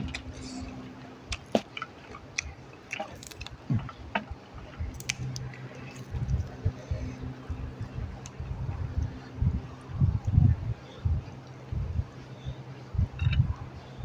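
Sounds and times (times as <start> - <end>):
person chewing food: 0.0 - 6.6.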